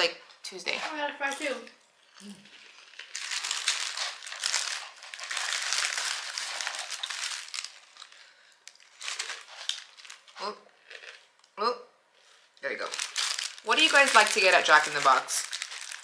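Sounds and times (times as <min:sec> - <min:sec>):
paper wrapper crinkling: 0:02.5 - 0:11.3, 0:12.7 - 0:16.0.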